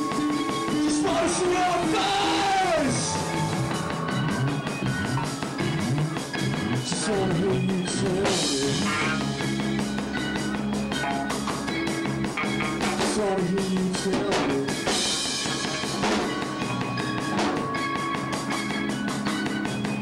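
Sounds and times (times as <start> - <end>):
bass guitar: 0.0 - 20.0
drum kit beat: 0.0 - 20.0
electric guitar: 0.0 - 20.0
person singing lead vocal: 0.7 - 3.5, 6.8 - 9.4, 13.0 - 14.9.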